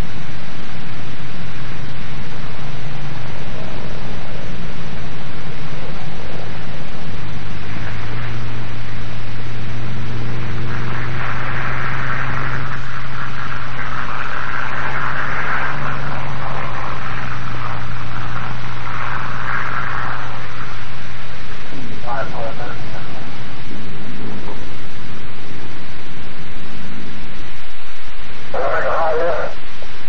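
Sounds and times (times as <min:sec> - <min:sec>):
old film soundtrack hiss: 0:00.0 - 0:30.0
propeller plane engine droning: 0:00.0 - 0:30.0.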